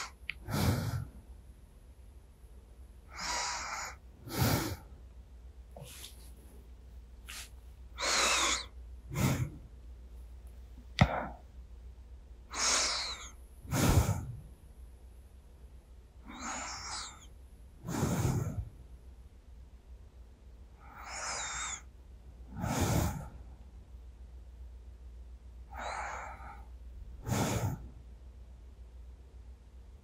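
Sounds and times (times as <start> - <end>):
person breathing slowly: 0.0 - 1.3, 3.0 - 5.0, 7.3 - 9.8, 12.5 - 14.5, 16.2 - 18.9, 20.8 - 23.6, 25.7 - 28.0.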